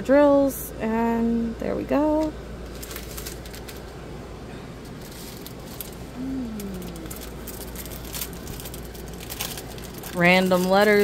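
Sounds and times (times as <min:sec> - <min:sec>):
person humming: 0:06.1 - 0:07.4.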